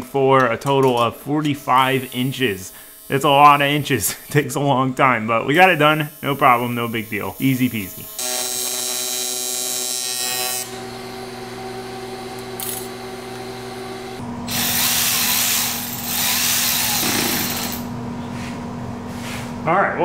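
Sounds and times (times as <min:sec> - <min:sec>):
steady hum: 0:00.0 - 0:08.2
welding arc buzzing: 0:00.4 - 0:18.0
cordless power tool running: 0:01.7 - 0:04.4, 0:05.6 - 0:17.9.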